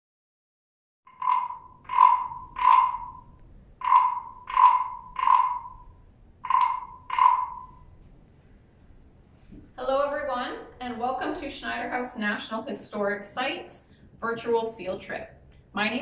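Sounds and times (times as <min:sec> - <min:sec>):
wooden frog rasp croaks: 0:01.1 - 0:07.8.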